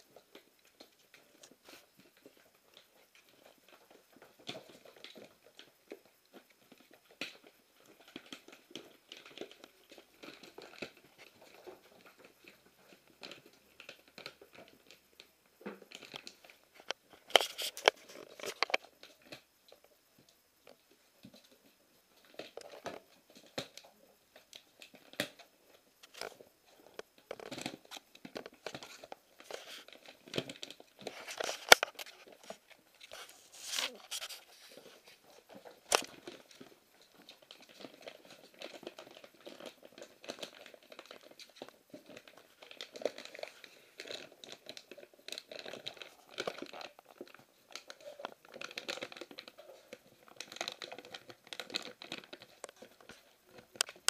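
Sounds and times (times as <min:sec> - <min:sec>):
puppies tearing plastic wrapping: 0:28.6 - 0:34.9, 0:37.7 - 0:54.0.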